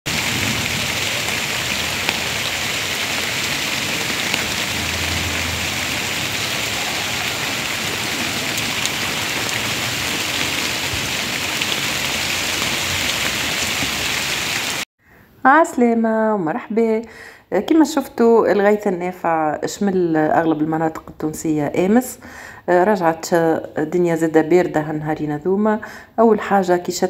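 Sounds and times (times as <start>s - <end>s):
raindrop ticks: 0.1s - 14.0s
steady rain falling: 0.1s - 14.9s.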